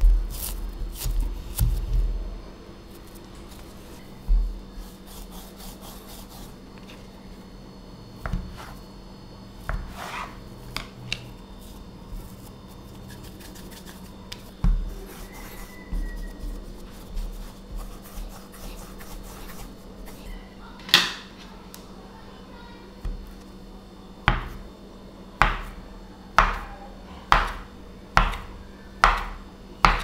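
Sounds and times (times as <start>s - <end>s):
hands rolling dough on board: 9.6s - 10.9s, 11.7s - 20.3s, 27.3s - 30.0s
knife cutting dough on board: 9.6s - 10.9s, 27.3s - 30.0s.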